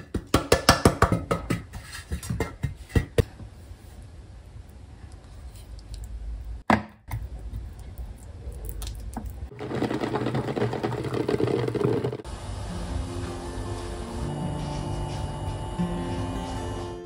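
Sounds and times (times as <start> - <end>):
water boiling hard in saucepan: 9.5 - 12.3.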